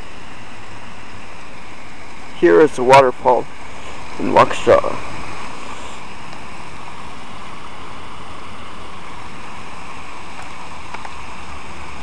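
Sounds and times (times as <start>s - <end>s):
fountain water splashing: 0.0s - 12.0s.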